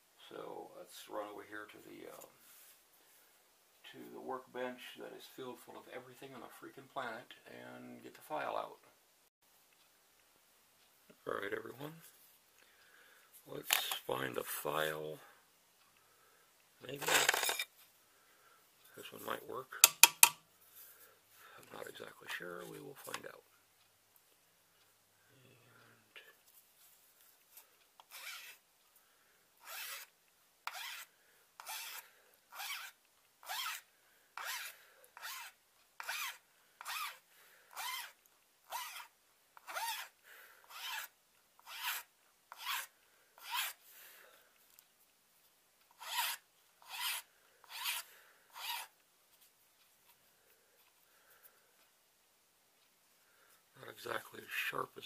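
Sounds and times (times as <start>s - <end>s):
hand file rasping on metal: 28.0s - 28.6s, 29.6s - 30.1s, 30.7s - 43.8s, 46.0s - 48.9s.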